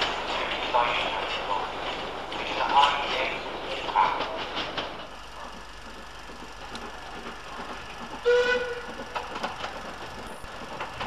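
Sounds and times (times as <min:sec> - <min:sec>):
steam locomotive whistle: 0:08.2 - 0:08.9.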